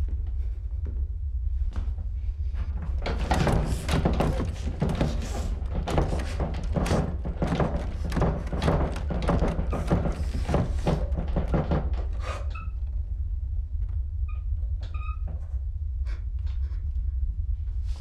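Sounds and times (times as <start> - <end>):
low steady rumble: 0.0 - 18.0
door banging and rattling: 2.6 - 13.0.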